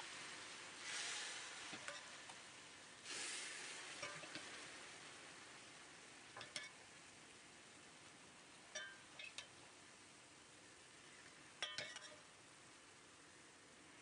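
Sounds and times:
faint hiss: 0.0 - 14.0
metal ladle clinking on metal: 4.0 - 4.5, 6.4 - 6.8, 8.7 - 9.5, 11.6 - 12.3.

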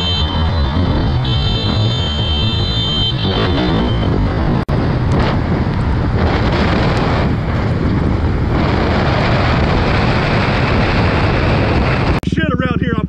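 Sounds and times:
motorcycle engine running: 0.0 - 13.0
wind rushing over microphone: 0.0 - 13.0.

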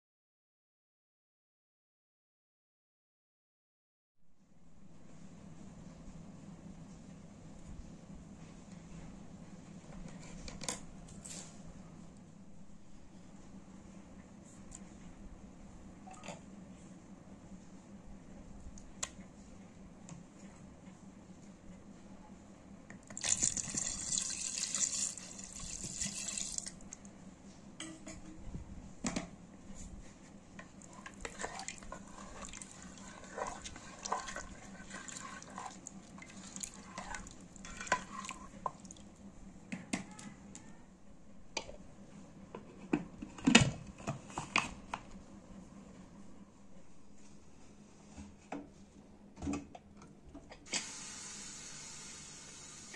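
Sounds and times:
water pouring into pot: 23.2 - 26.8
ladle scraping pot: 30.8 - 38.9.

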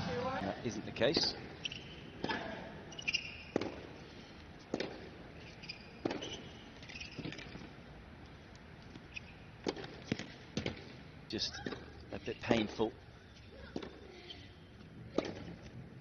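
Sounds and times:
shoe squeaks: 1.6 - 3.7, 5.4 - 7.7, 9.0 - 9.5, 13.2 - 14.7.

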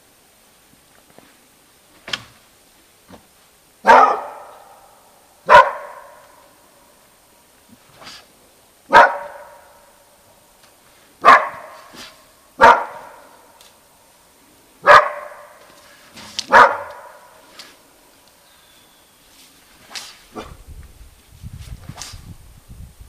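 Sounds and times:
dog barking: 3.8 - 4.8, 5.4 - 6.4, 8.9 - 9.8, 11.2 - 13.4, 14.8 - 15.6, 16.5 - 17.4.

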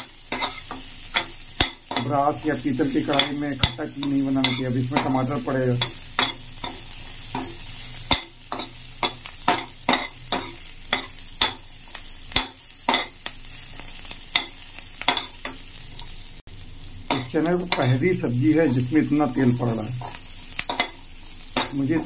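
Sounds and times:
metal spatula scraping a pan: 0.0 - 2.1, 2.8 - 11.6
onions sizzling in oil: 0.0 - 22.0.

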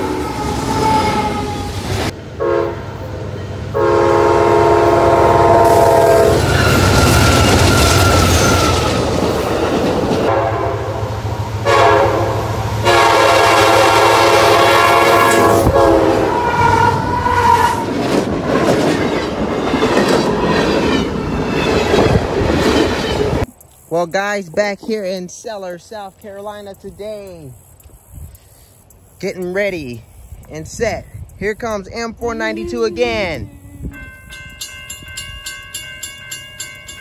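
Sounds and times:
locomotive horn blasts: 2.4 - 2.9, 3.7 - 7.4, 10.3 - 17.8, 32.4 - 34.1.

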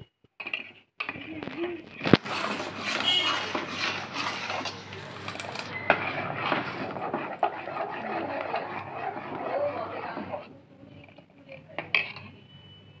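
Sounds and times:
metal ladle scraping pot: 0.5 - 10.6.

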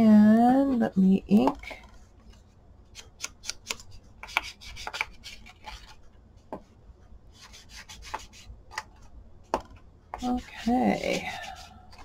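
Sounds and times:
ink tool scrubbing paper: 10.2 - 12.0.

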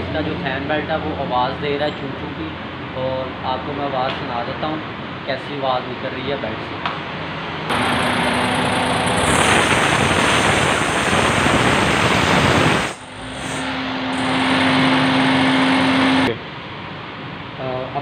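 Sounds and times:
car engine running: 7.7 - 16.3
fan belt squeaking: 7.7 - 16.3.

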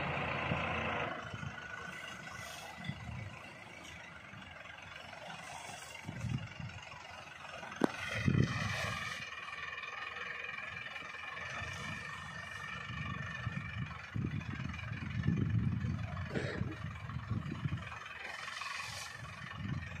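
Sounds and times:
steady whine: 0.0 - 20.0
tractor engine rumble: 0.0 - 20.0.

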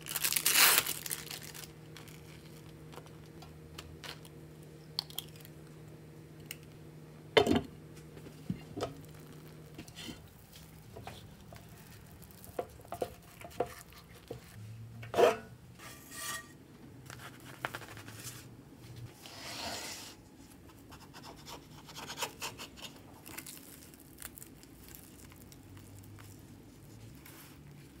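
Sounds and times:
low steady hum: 0.0 - 28.0
egg cracking: 5.0 - 5.6.

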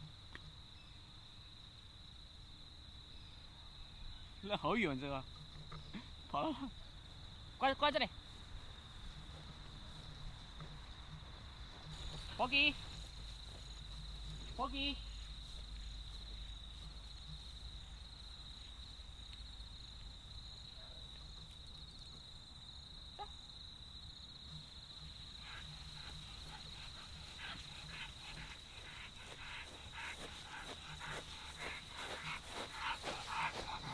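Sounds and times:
insects trilling: 0.0 - 33.9
rustling in grass: 8.5 - 19.6, 25.4 - 33.9.

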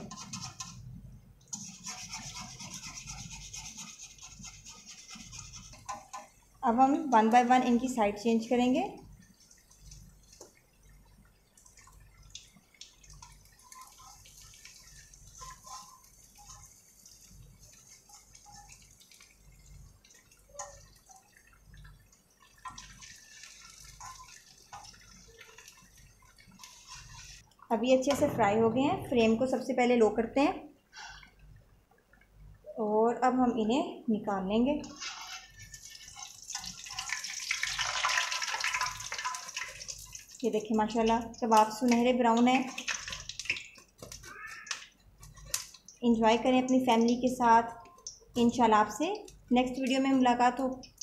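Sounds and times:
metal spatula scraping a wok: 0.0 - 0.9, 1.5 - 6.3, 15.4 - 16.6, 24.0 - 24.3, 26.6 - 27.4, 34.8 - 35.8
food sizzling in hot oil: 8.6 - 27.5, 34.8 - 47.5.

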